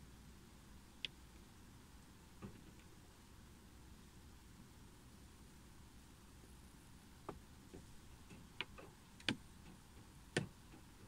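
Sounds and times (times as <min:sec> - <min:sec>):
faint steady background noise: 0:00.0 - 0:11.0
raindrops tapping on windscreen: 0:07.2 - 0:11.0.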